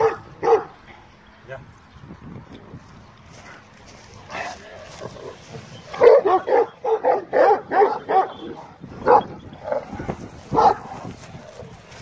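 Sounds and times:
dog barking: 0:00.0 - 0:00.8, 0:05.9 - 0:11.1.

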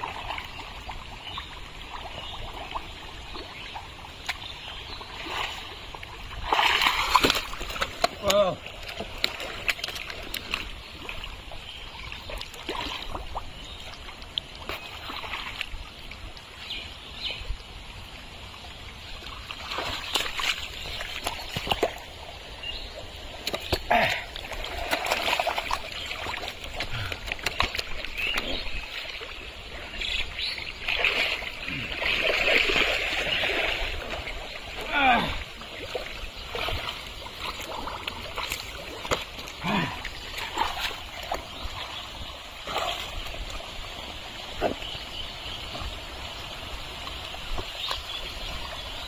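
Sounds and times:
fish thrashing in mud: 0:06.4 - 0:10.6, 0:23.4 - 0:28.6
hands splashing in watery mud: 0:06.4 - 0:10.7, 0:23.4 - 0:29.0, 0:30.8 - 0:34.2.

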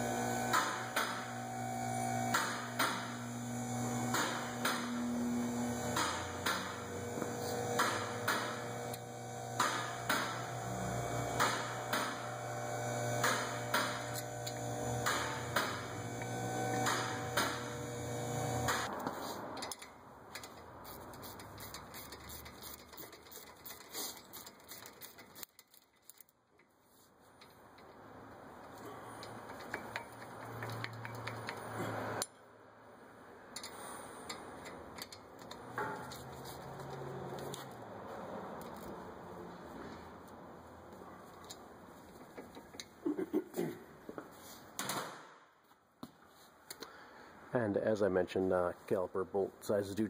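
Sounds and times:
electrical hum: 0:00.0 - 0:18.9
ratchet wrench clicking: 0:19.6 - 0:26.3, 0:28.6 - 0:32.3.

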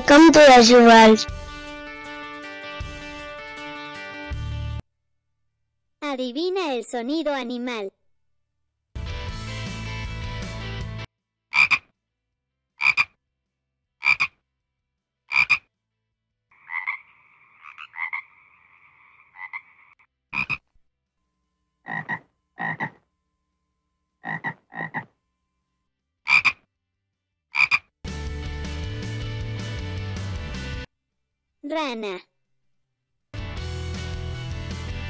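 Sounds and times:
frog croaking: 0:11.6 - 0:11.8, 0:12.8 - 0:13.1, 0:14.0 - 0:14.4, 0:15.3 - 0:15.6, 0:16.5 - 0:20.7, 0:21.9 - 0:23.0, 0:24.2 - 0:25.1, 0:26.3 - 0:26.6, 0:27.5 - 0:27.9
frog trilled call: 0:15.3 - 0:15.6, 0:20.4 - 0:20.6, 0:21.9 - 0:23.0, 0:24.2 - 0:25.1, 0:26.3 - 0:26.6, 0:27.6 - 0:27.8.

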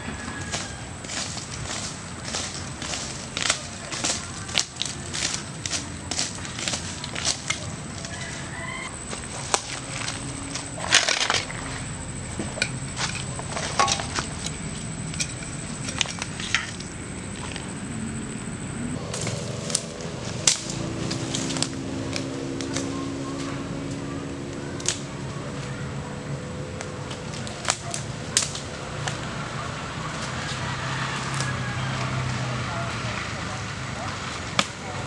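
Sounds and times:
footsteps in dry leaves: 0:00.0 - 0:17.9, 0:19.0 - 0:25.9, 0:26.9 - 0:35.0
twigs snapping: 0:00.4 - 0:17.8, 0:19.1 - 0:24.0, 0:24.8 - 0:25.4, 0:26.8 - 0:29.3.

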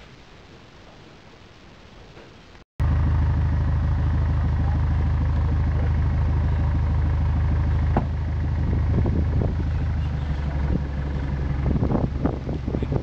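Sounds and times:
boat engine idling: 0:02.8 - 0:13.0.

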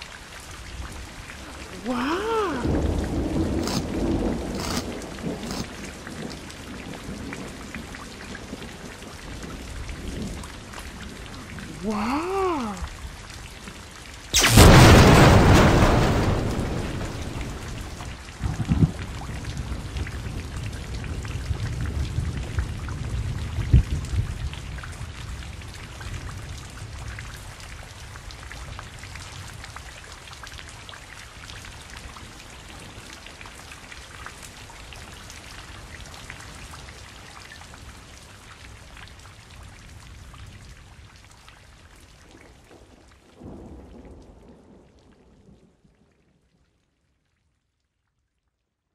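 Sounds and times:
rain falling: 0:00.0 - 0:48.7
thunder clap and rumbles: 0:02.6 - 0:11.7, 0:14.4 - 0:27.1.

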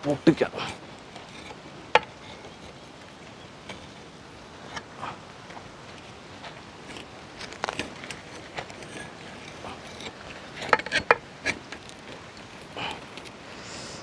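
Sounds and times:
steady background hiss: 0:00.0 - 0:14.0
metal clicks and scrapes: 0:00.6 - 0:03.0, 0:06.8 - 0:13.4.

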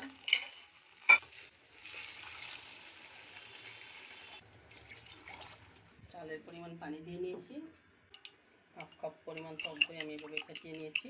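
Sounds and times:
rice sizzling in oil: 0:00.0 - 0:04.4.

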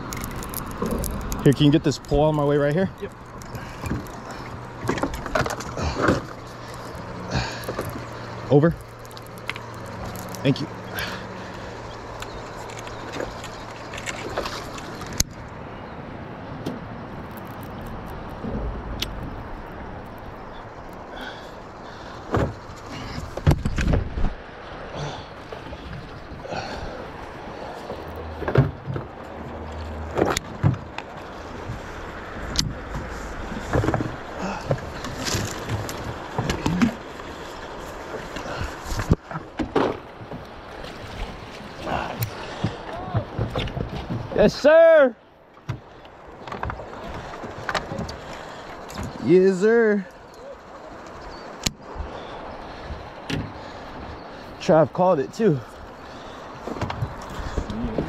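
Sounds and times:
water noise around boat: 0:00.0 - 0:58.0
wind: 0:00.0 - 0:58.0
dull low thump: 0:18.4 - 0:19.5.

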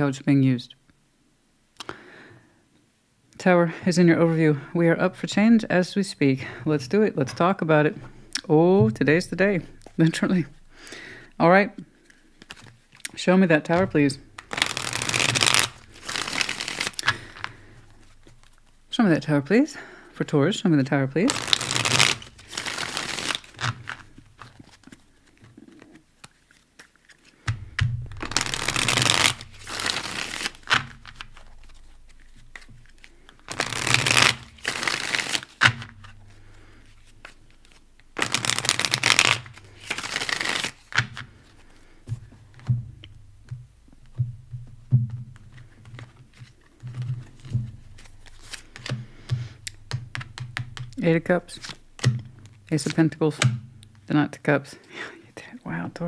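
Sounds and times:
cards being shuffled: 0:12.0 - 0:18.8, 0:21.2 - 0:42.7, 0:45.1 - 0:53.5
cards clicking and tapping: 0:14.4 - 0:17.6, 0:21.3 - 0:36.2, 0:37.2 - 0:41.3, 0:42.1 - 0:51.0.

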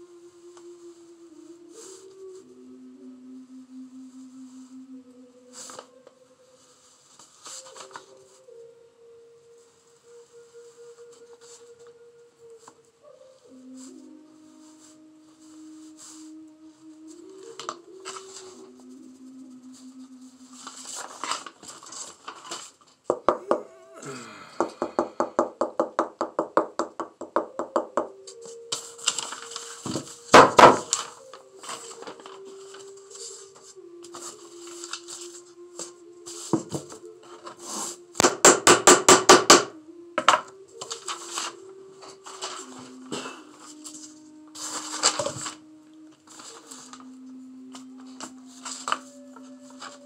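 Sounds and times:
person humming: 0:00.0 - 0:21.8, 0:23.1 - 0:50.0.

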